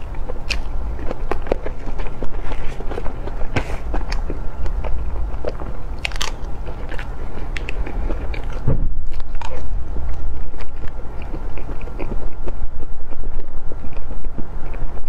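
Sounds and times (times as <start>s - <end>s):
person chewing with lip smacks: 0.0s - 15.0s
low thump: 8.6s - 9.0s.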